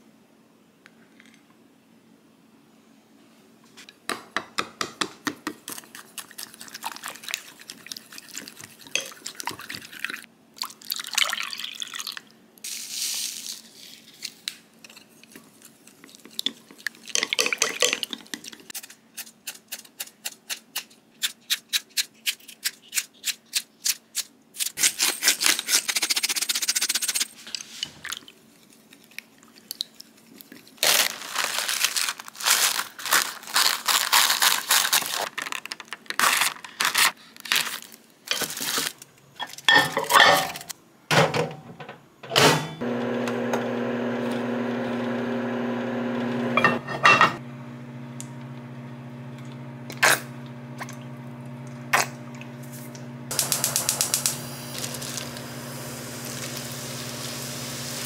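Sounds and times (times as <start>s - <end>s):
running water: 53.3s - 58.0s.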